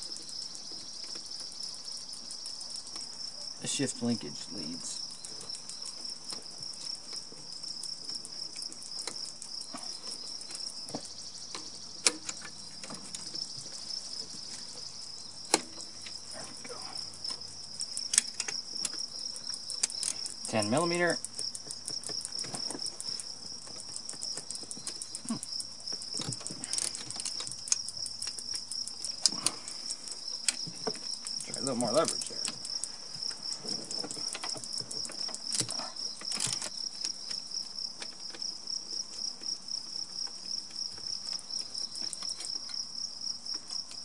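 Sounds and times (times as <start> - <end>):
insect chirring: 0.0 - 44.0.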